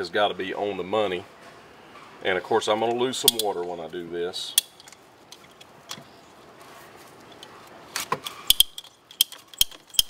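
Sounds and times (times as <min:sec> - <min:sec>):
pipe cutter ratchet clicks: 0:03.2 - 0:03.5, 0:08.4 - 0:10.0.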